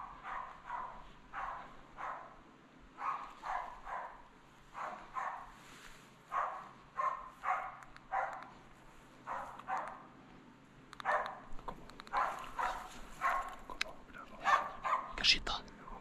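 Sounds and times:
dog barking: 0.0 - 5.6, 6.3 - 8.6, 9.2 - 10.2, 11.0 - 13.8, 14.4 - 15.3.

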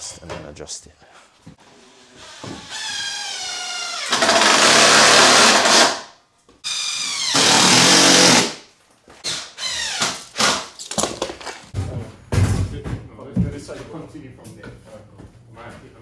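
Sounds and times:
impact driver driving screws: 2.6 - 6.0.

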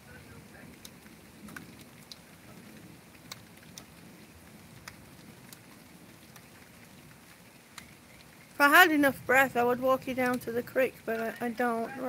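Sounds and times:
raindrop taps: 0.0 - 11.9
faint steady rain: 0.0 - 12.0.

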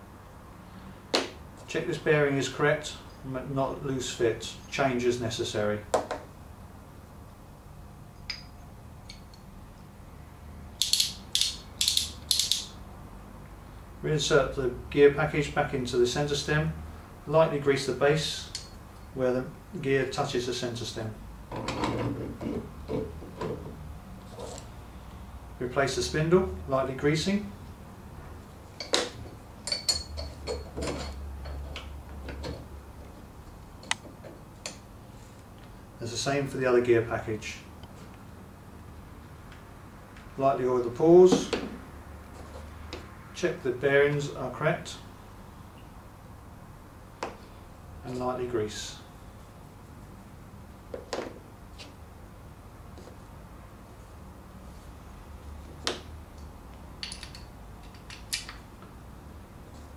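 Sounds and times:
winch ratcheting clicks: 10.8 - 12.7.

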